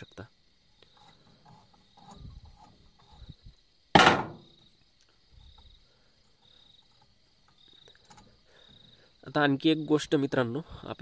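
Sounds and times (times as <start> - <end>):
crickets chirping: 0.0 - 11.0
sharp knock: 4.0 - 4.5.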